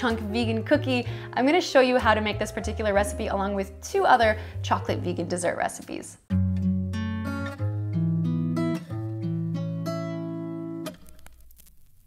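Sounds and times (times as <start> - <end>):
acoustic guitar chords: 6.3 - 11.0.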